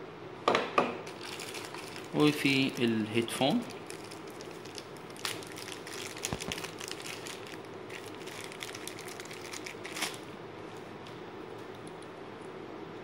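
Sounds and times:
plastic bag crinkling: 0:01.0 - 0:10.3.

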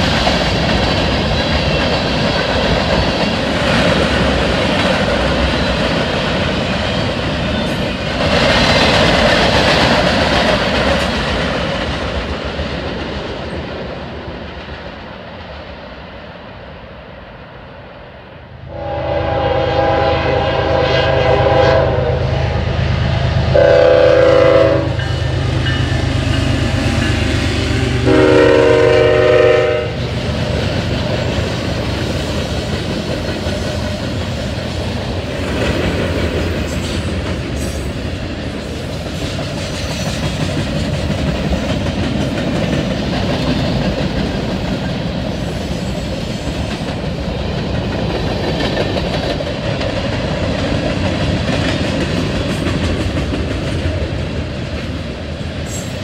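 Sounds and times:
train wheels clattering on rails: 0:00.0 - 0:16.5, 0:23.2 - 0:56.0
locomotive horn blasts: 0:18.7 - 0:22.8, 0:23.5 - 0:25.2, 0:28.0 - 0:30.0.

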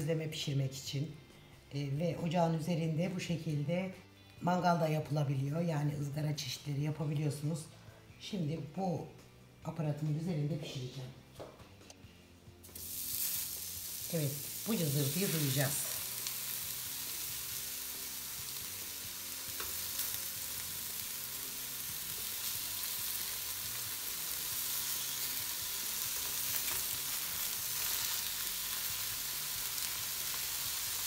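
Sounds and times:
meatballs sizzling on griddle: 0:12.6 - 0:31.0.

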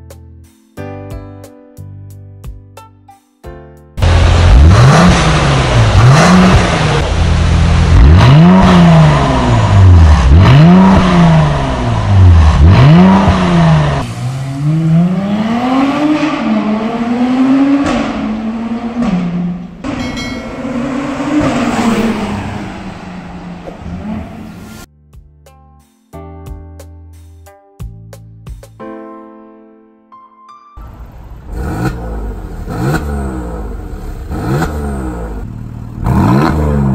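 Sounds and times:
car accelerating through gears: 0:04.0 - 0:24.9, 0:31.5 - 0:36.9
car engine revving: 0:04.0 - 0:24.9, 0:30.9 - 0:36.9.

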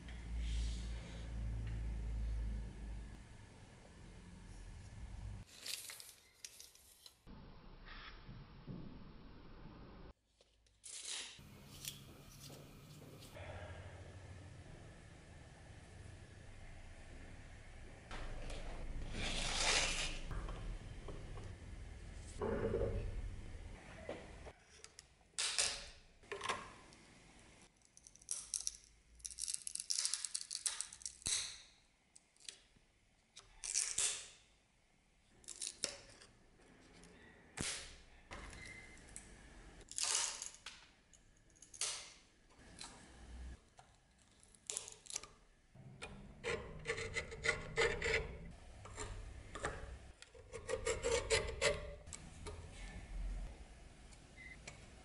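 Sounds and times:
steel tools scraping wood and metal: 0:46.0 - 0:52.1.

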